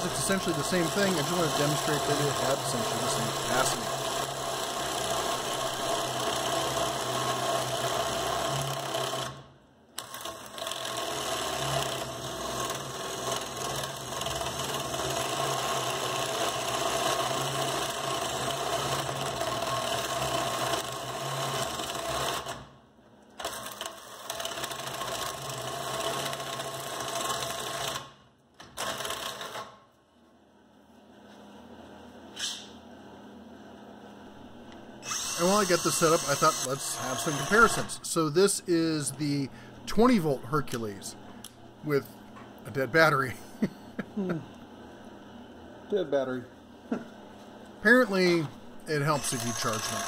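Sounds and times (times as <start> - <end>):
spade bit grinding through wood: 0.0 - 8.2, 35.0 - 39.3, 48.9 - 50.0
cordless screwdriver motor whining: 35.0 - 38.0, 49.0 - 50.0.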